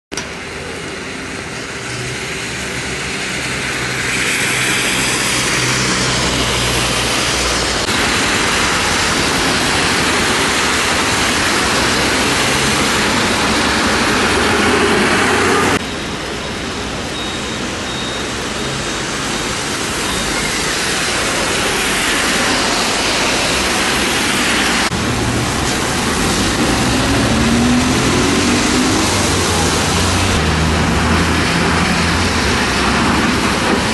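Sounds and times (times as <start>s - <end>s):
rain hiss: 1.4s - 15.2s, 17.6s - 33.6s
vehicle engines passing: 19.2s - 33.9s
engine rising in pitch: 26.1s - 32.2s.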